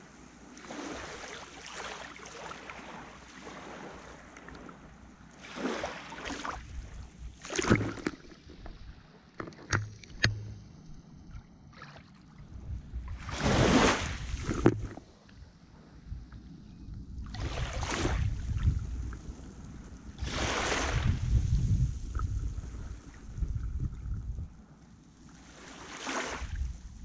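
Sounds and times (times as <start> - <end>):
sea waves splashing: 0.0 - 10.7, 11.6 - 15.2, 17.3 - 21.5, 25.3 - 26.6.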